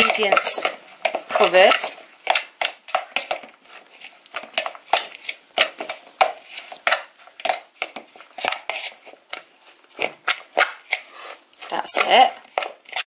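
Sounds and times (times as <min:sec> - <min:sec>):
spoon scraping plastic bowl: 0:00.0 - 0:13.0.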